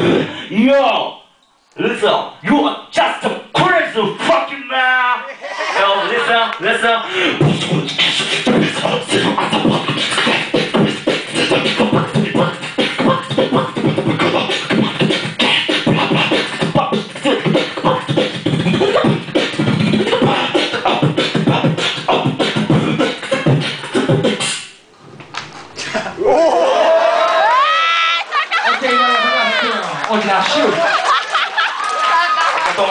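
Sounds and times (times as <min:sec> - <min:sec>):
beatboxing through a microphone: 0:00.0 - 0:00.5, 0:05.8 - 0:24.8
voices shouting and cheering: 0:26.2 - 0:32.9.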